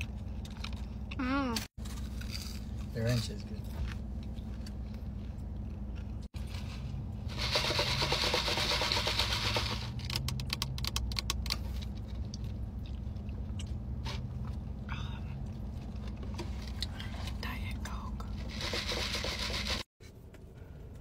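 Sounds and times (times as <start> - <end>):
slurping through a straw: 7.3 - 9.8, 18.4 - 19.9.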